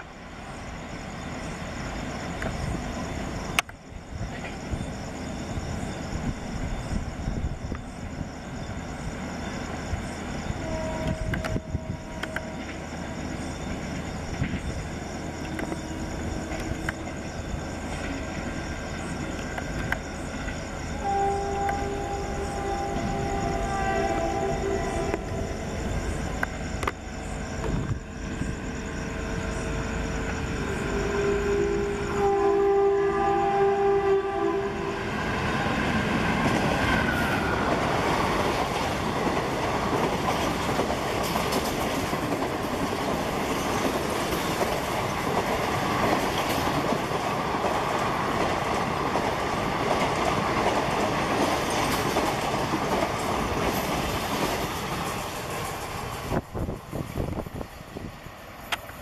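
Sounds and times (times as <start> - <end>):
train wheels rushing on rail: 0.0 - 59.0
locomotive horn blast: 10.6 - 12.6, 21.0 - 25.5, 30.8 - 35.0
coaches clickety-clack: 38.4 - 56.3.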